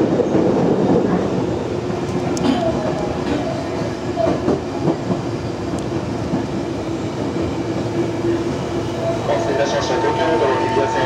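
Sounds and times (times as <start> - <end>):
steady train hum: 0.0 - 11.0
train wheel and rail rumble: 0.0 - 11.0.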